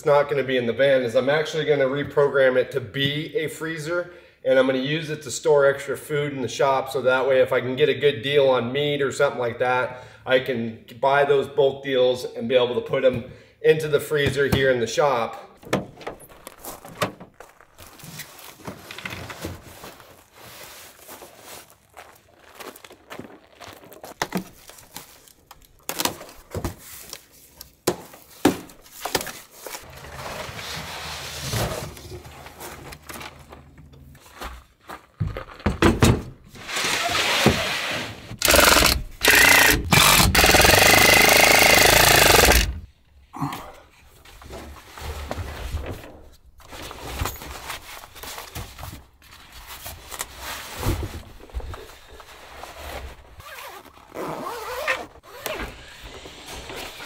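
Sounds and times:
cordless drill driving screws: 38.4s - 42.8s.

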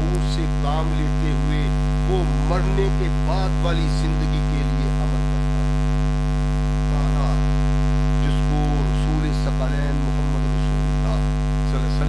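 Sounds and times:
faint voice: 0.0s - 5.4s, 6.9s - 7.4s, 8.2s - 12.0s
electrical mains hum: 0.0s - 12.0s.

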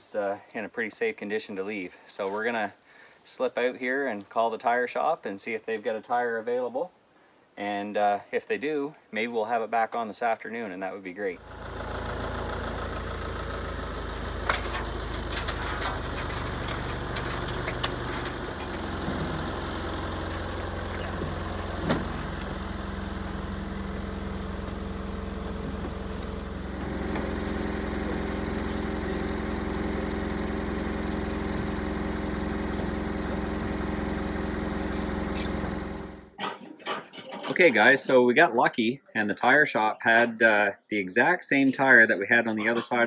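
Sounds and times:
backhoe engine idling: 11.4s - 36.3s.

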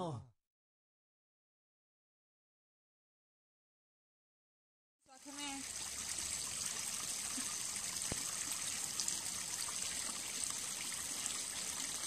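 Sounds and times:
trickle of running water: 5.1s - 12.0s.

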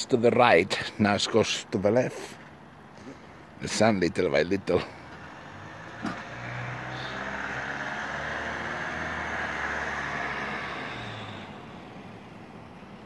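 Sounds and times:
vehicle engine and tyres passing: 4.5s - 13.0s.

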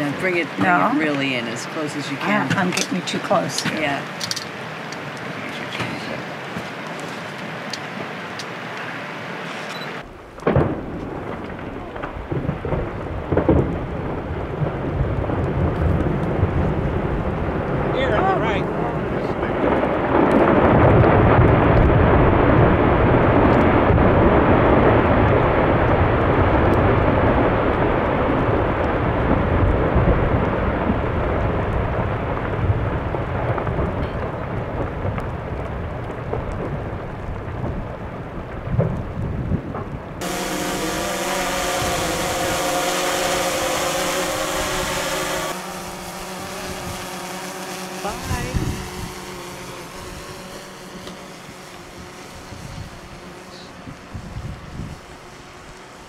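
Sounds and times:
ship engine rumble: 0.0s - 56.0s
wind noise: 0.0s - 56.0s
engine hum with held tones: 40.2s - 56.0s.

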